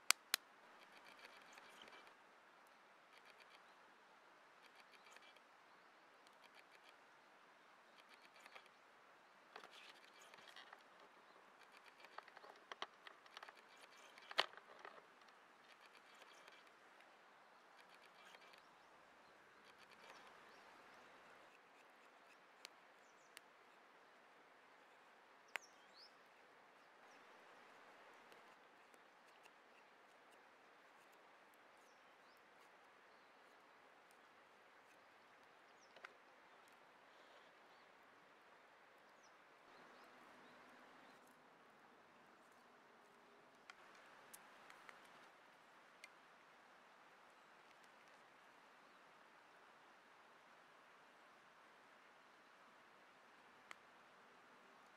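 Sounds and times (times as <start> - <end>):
soft ticks: 0.0 - 3.7, 4.6 - 5.5, 6.2 - 7.0, 7.9 - 8.8, 9.5 - 18.7, 19.6 - 23.8, 25.5 - 26.1, 27.0 - 31.3, 42.5 - 45.4, 53.6 - 53.9.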